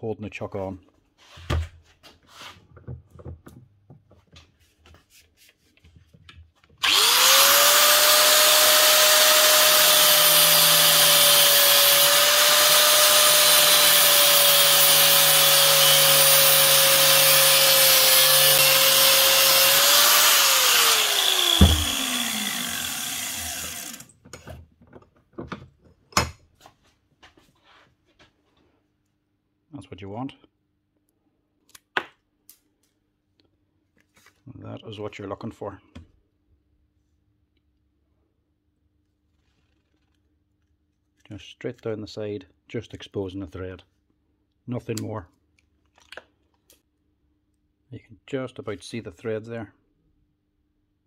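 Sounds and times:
knocks and clatter of handling: 0:02.7 - 0:04.6, 0:24.2 - 0:26.8
angle grinder cutting metal: 0:06.8 - 0:24.1.

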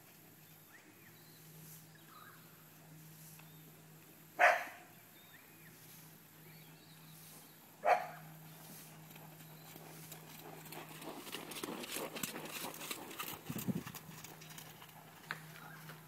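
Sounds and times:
dog barking: 0:04.4 - 0:04.9, 0:07.8 - 0:08.3.

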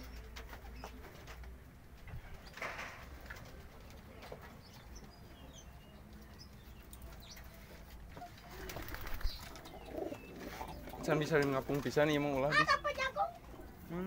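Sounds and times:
pigeons cooing: 0:08.2 - 0:11.4.

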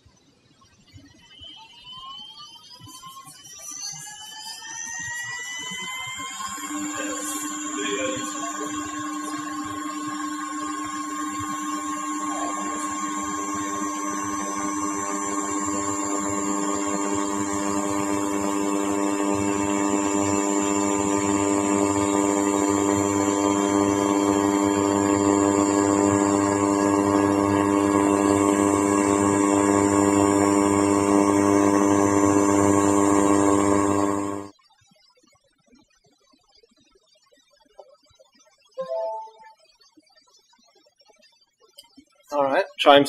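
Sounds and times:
laser scanner motor whine: 0:00.6 - 0:34.6.

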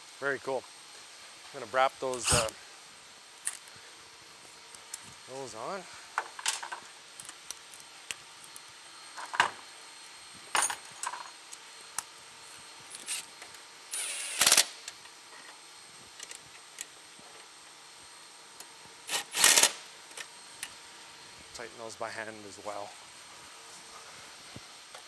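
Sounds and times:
cordless ratchet running in bolts: 0:13.9 - 0:14.7, 0:19.1 - 0:19.8.

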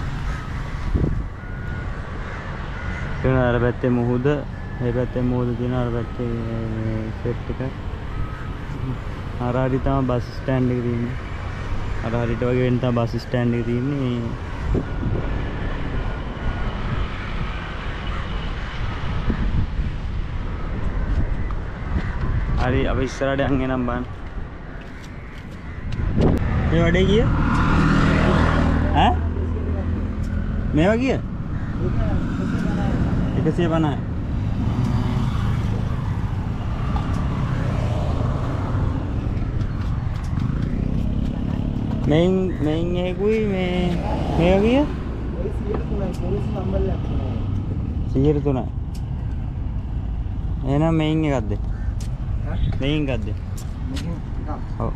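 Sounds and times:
wind rumble on microphone: 0:00.0 - 0:02.2, 0:14.0 - 0:45.8
road traffic: 0:00.0 - 0:54.9.

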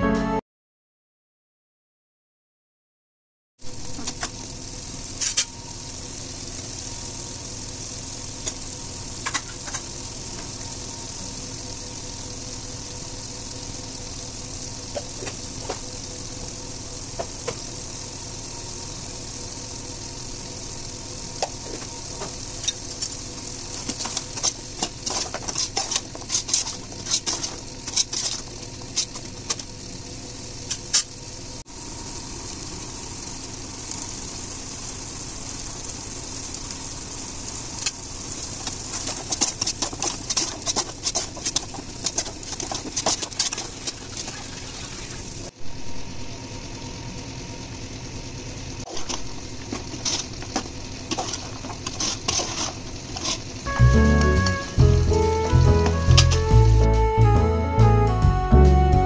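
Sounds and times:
gravy sizzling in a pot: 0:03.6 - 0:57.3
utensil scraping and knocking pot: 0:23.9 - 0:29.6, 0:38.9 - 0:44.6, 0:48.9 - 0:53.5.

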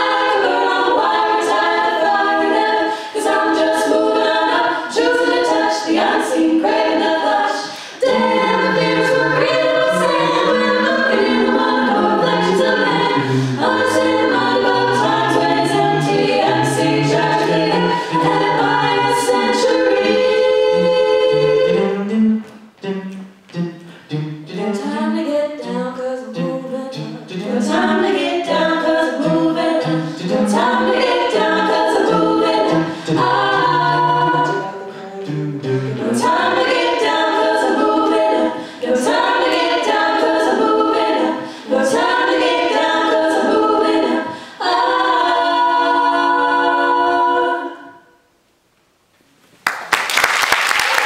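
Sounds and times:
a cappella group singing harmony: 0:00.0 - 0:48.4.

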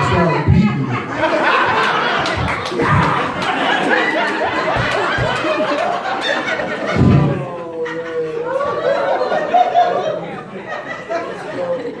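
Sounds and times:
small audience laughing: 0:00.0 - 0:12.0.

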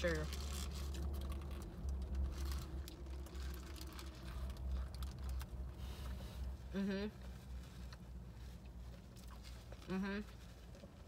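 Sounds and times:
low steady rumble: 0:00.0 - 0:11.0
paper wrapper rustling: 0:00.2 - 0:05.6
person chewing food: 0:07.2 - 0:11.0.

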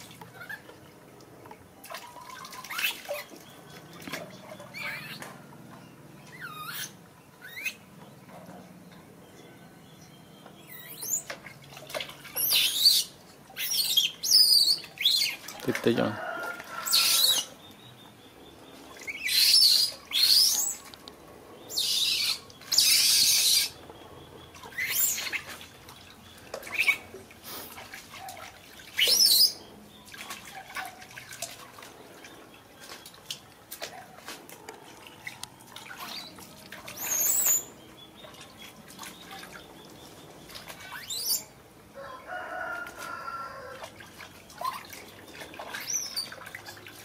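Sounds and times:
water splashing in plastic tub: 0:00.0 - 0:06.4, 0:11.0 - 0:17.5, 0:24.5 - 0:47.0
baby monkey squealing: 0:12.4 - 0:15.4, 0:21.7 - 0:23.8.

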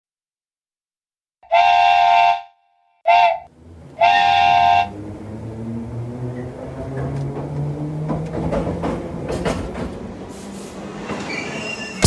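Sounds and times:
steam train whistle blowing: 0:01.4 - 0:04.9.

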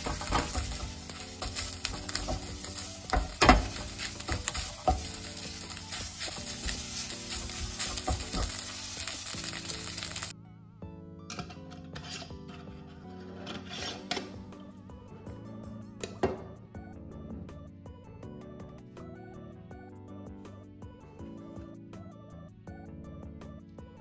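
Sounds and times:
eggs and rice sizzling: 0:00.0 - 0:10.3
spatula scraping a pan: 0:00.0 - 0:10.3, 0:11.4 - 0:14.4
soft background music: 0:00.0 - 0:24.0.

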